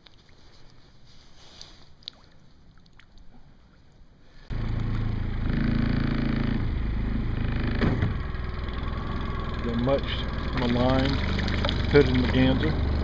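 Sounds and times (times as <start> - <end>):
boat motor running: 4.5 - 13.0.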